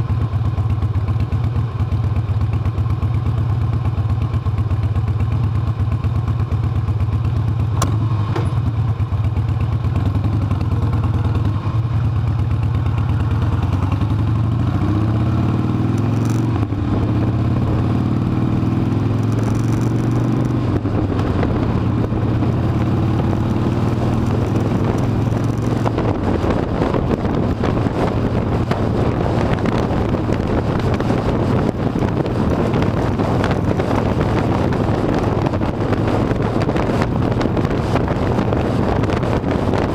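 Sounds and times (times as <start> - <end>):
motorcycle engine accelerating: 0.0 - 39.9
wind noise: 13.3 - 39.9.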